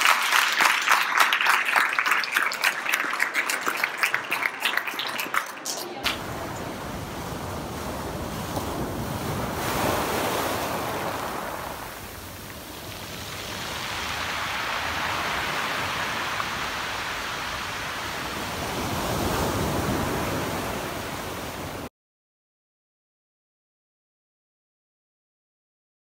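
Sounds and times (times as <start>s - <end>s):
waves washing up pebble beach: 6.1s - 21.9s.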